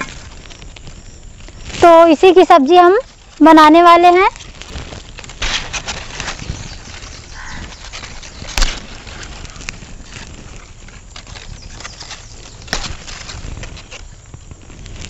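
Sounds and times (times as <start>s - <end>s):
leaves rustling: 0.0s - 15.0s.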